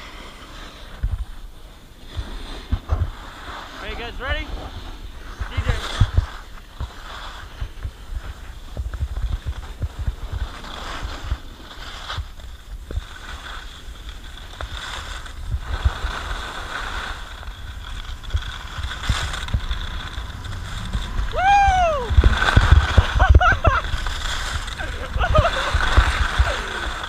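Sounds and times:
skis scraping on snow: 0.0 - 27.0
wind buffeting microphone: 17.2 - 27.0.

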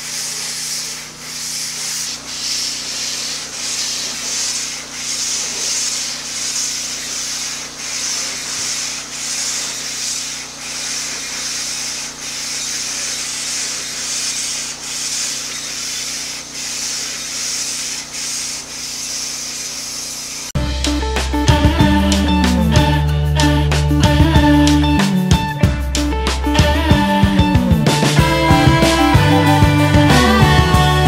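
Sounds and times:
pressure washer jet hissing: 0.0 - 20.6.

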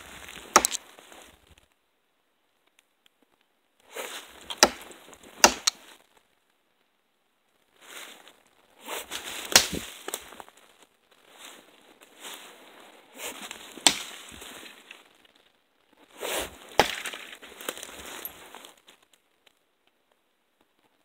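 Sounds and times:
twig snaps: 0.3 - 0.8, 9.4 - 10.3
footsteps crunching through dry leaves: 7.8 - 15.4, 16.0 - 19.0.

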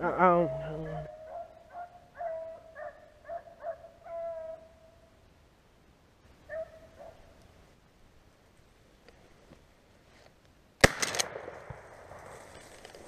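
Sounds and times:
hound baying: 0.0 - 4.8, 6.5 - 7.3.

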